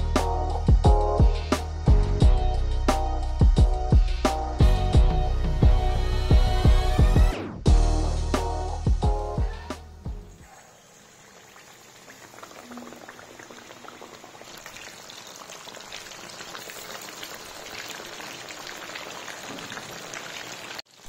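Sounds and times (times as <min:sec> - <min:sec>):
oil sizzling deep-frying: 0:10.7 - 0:21.0.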